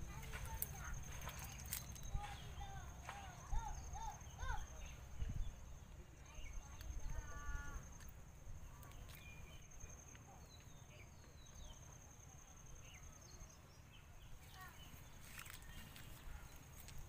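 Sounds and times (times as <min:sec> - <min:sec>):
high-pitched insect trill: 0:00.1 - 0:02.4.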